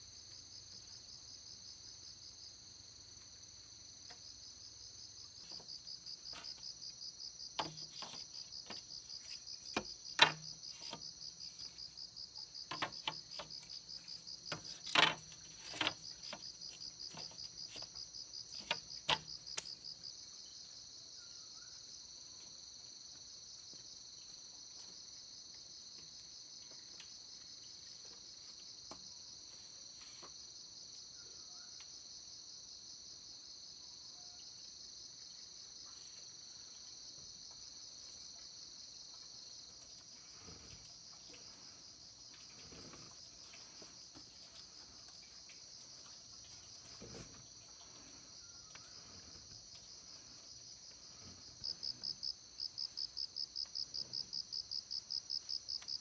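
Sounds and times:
insects chirping: 0:00.0 - 0:56.0
bamboo knocking: 0:07.5 - 0:11.2, 0:12.6 - 0:13.8, 0:14.4 - 0:17.9, 0:18.5 - 0:19.8.

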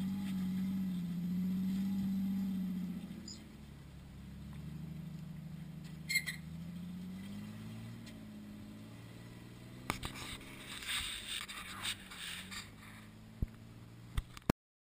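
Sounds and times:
engine running at low revs: 0:00.0 - 0:14.5
brief high squeak: 0:06.0 - 0:06.5
rustling scraping with clicks: 0:09.8 - 0:13.2.

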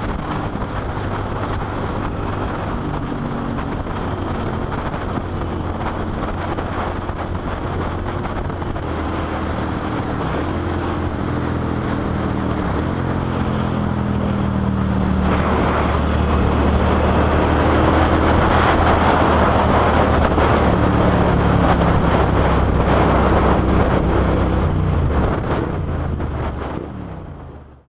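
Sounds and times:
motorcycle engine running: 0:00.0 - 0:26.8
wind noise on microphone: 0:00.0 - 0:27.9.

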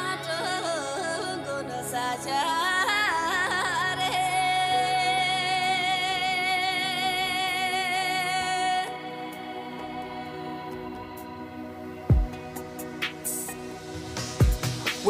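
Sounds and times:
woman singing: 0:00.0 - 0:11.4
backing music: 0:08.4 - 0:15.0.

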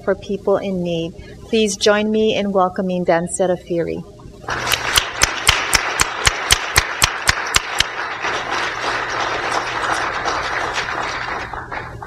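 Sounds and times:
audience applauding: 0:04.5 - 0:12.0
person clapping close by: 0:04.5 - 0:12.0.

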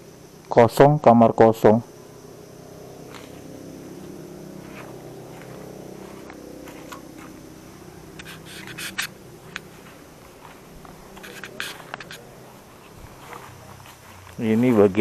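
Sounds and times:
steady low drone: 0:01.8 - 0:15.0
footsteps on rough path: 0:03.1 - 0:15.0
camera handling noise: 0:08.2 - 0:09.7, 0:10.4 - 0:12.2.

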